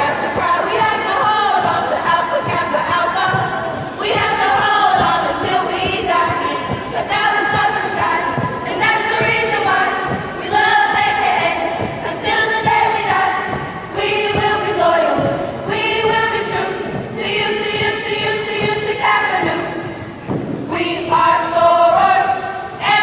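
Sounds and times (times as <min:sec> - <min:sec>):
women singing a chant: 0:00.0 - 0:23.0
thuds of footsteps: 0:00.2 - 0:20.8.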